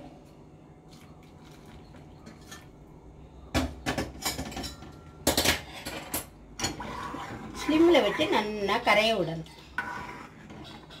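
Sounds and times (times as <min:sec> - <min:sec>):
steel kitchenware clanking: 0:03.6 - 0:11.0.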